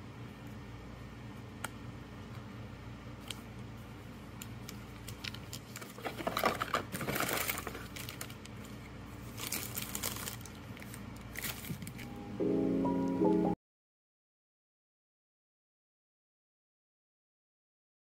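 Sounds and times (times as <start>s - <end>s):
plastic packaging crinkling: 4.5s - 12.1s.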